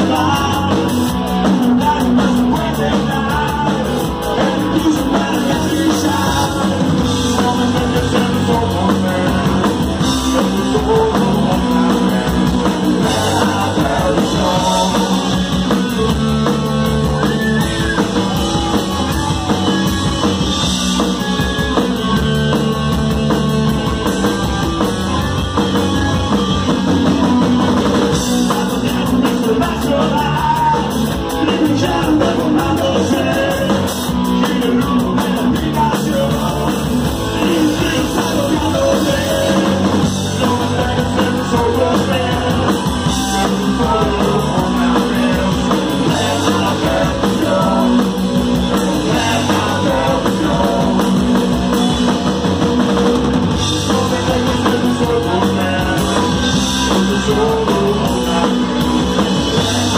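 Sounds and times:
person singing: 0:00.0 - 0:16.2, 0:28.3 - 0:51.5, 0:53.6 - 0:59.9
bass guitar: 0:00.0 - 0:59.9
drum kit: 0:00.0 - 0:59.9
electric guitars: 0:00.0 - 0:59.9.

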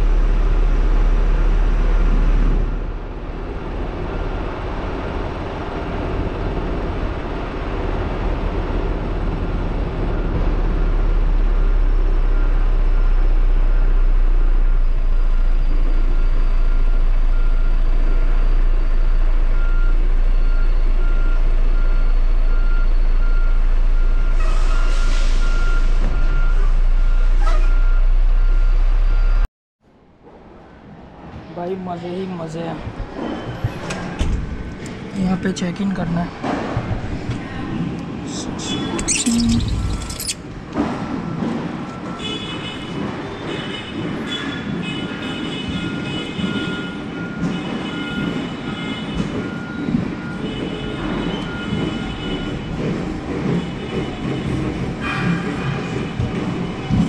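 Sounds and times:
diesel truck engine running: 0:00.0 - 0:29.5, 0:36.4 - 0:44.2
reversing alarm beeping: 0:11.6 - 0:29.5, 0:38.3 - 0:40.4, 0:45.8 - 0:52.8
air brakes hissing: 0:24.3 - 0:25.9, 0:38.3 - 0:40.4.

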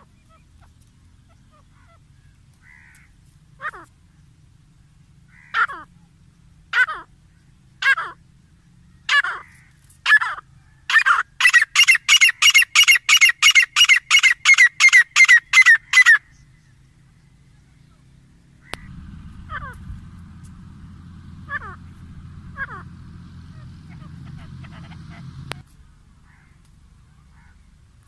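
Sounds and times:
francolin calling: 0:05.2 - 0:18.0, 0:18.6 - 0:25.6
steady low hum: 0:16.2 - 0:28.0.

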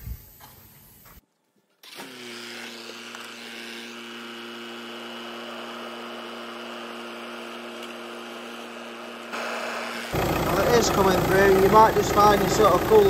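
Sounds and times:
diesel engine idling: 0:10.1 - 0:13.0.

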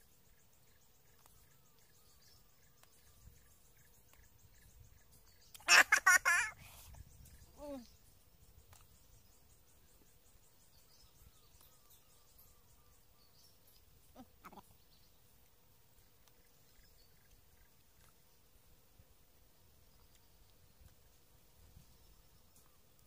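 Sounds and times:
faint high chirping: 0:00.0 - 0:19.1, 0:19.7 - 0:23.0
faint outdoor ambience: 0:00.0 - 0:23.0.

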